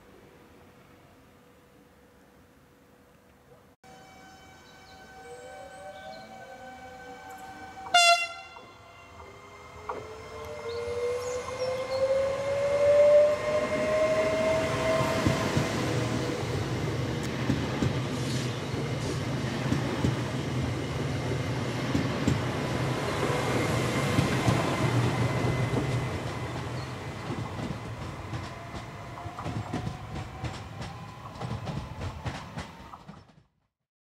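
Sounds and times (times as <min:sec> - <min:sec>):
train whine rising in pitch: 0:03.8 - 0:33.0
train wheels clicking over rail joints: 0:17.1 - 0:22.8, 0:23.6 - 0:33.5.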